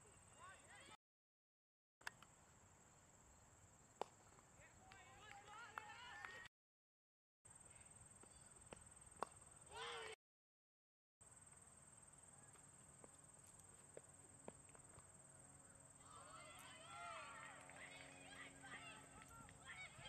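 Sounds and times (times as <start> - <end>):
brief shout: 9.7 - 10.2.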